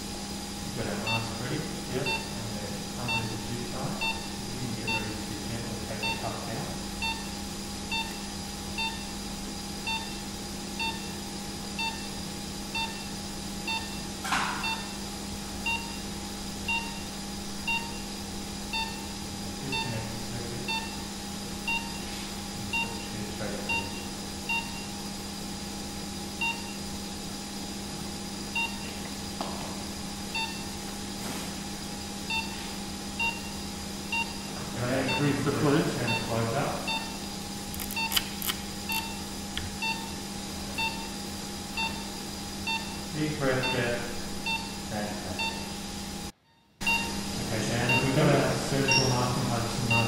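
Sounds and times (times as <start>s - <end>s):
equipment hum: 0.0s - 50.0s
patient monitor beeping: 1.0s - 6.4s, 7.0s - 9.1s, 9.9s - 11.2s, 11.8s - 12.2s, 12.8s - 13.1s, 13.7s - 15.0s, 15.6s - 16.1s, 16.7s - 17.1s, 17.7s - 24.9s, 26.4s - 26.8s, 28.6s - 29.0s, 30.4s - 30.8s, 32.3s - 38.3s, 38.9s - 40.2s, 40.8s - 41.2s, 41.8s - 42.1s, 42.7s - 44.8s, 45.4s - 45.8s, 46.5s - 50.0s.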